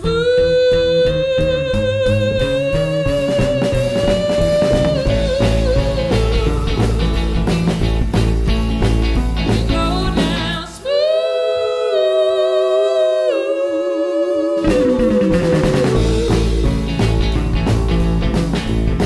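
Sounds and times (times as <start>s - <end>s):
woman singing: 0.0s - 7.2s, 9.6s - 16.8s
live band playing: 0.0s - 10.8s, 14.6s - 19.0s.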